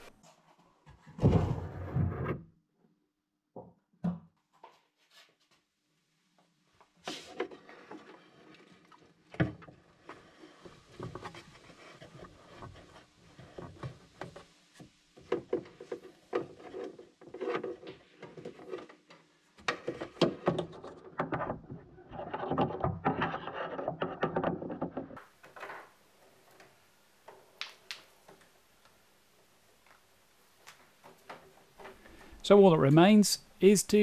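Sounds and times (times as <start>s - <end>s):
rubbing and scraping: 7.0s - 14.5s, 15.2s - 25.2s.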